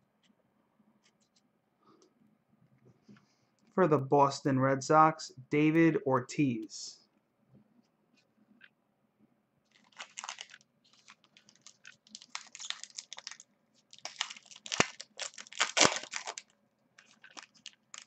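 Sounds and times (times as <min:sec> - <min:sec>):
foil wrapper crinkling and tearing: 0:09.7 - 0:18.0.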